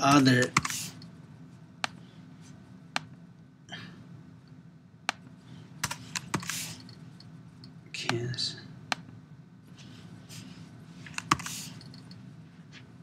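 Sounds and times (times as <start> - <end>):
keyboard and mouse clicks: 11.1 - 12.2.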